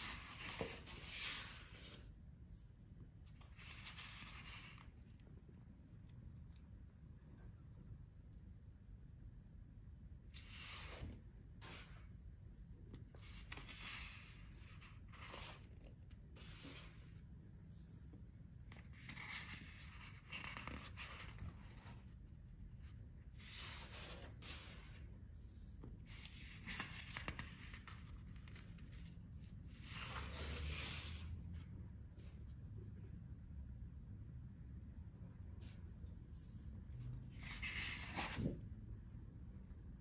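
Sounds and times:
paper rustling and sliding: 0.0s - 2.2s, 3.2s - 5.0s, 10.3s - 12.2s, 13.1s - 17.2s, 18.7s - 22.1s, 23.4s - 25.2s, 26.0s - 32.6s, 35.6s - 38.6s.

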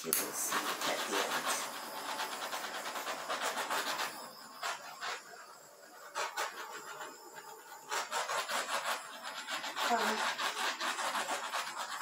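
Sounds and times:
scraping and rubbing: 0.0s - 12.0s.

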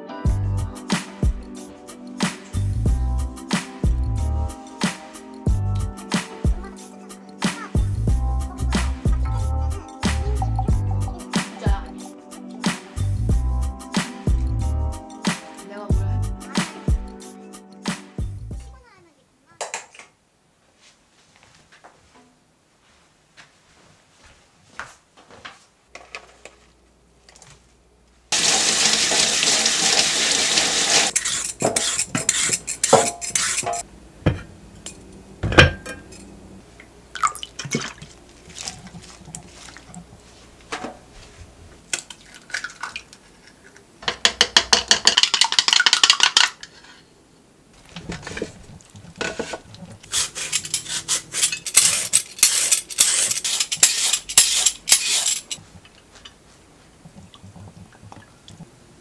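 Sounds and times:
glass bowls and utensils clinking: 28.4s - 36.4s, 44.6s - 46.9s, 49.2s - 55.6s
peeler shredding carrot: 30.9s - 33.8s, 49.2s - 55.6s.

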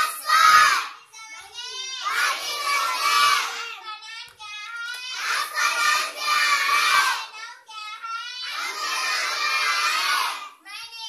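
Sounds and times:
children chanting in sing-song: 0.0s - 11.0s.

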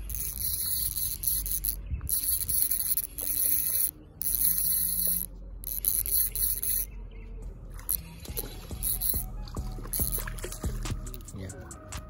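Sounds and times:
fishing reel cranking: 0.0s - 6.9s, 7.8s - 11.3s.

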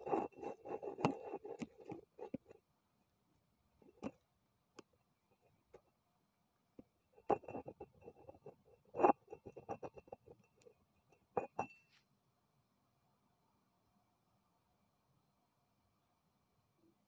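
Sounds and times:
faint steady high tone: 9.0s - 12.2s.

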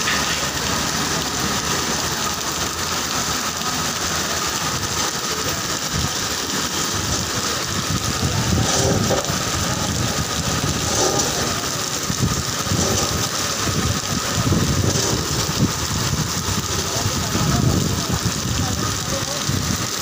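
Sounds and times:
heavy rain pouring: 0.0s - 20.0s
low rumbling: 4.3s - 20.0s.

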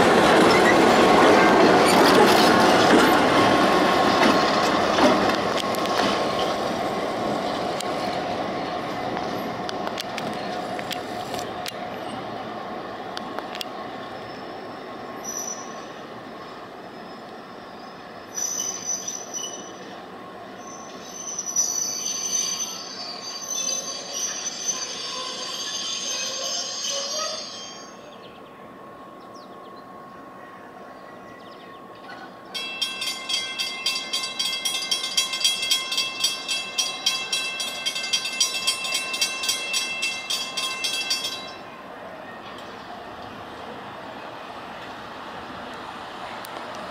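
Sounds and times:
train wheels squealing: 0.4s - 3.4s, 14.0s - 28.3s
bell striking: 32.6s - 41.6s.

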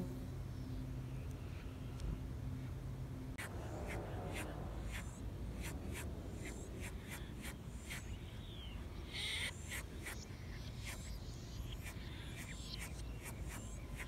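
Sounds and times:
low steady rumble: 0.0s - 9.4s
songbirds chip notes: 0.0s - 14.0s.

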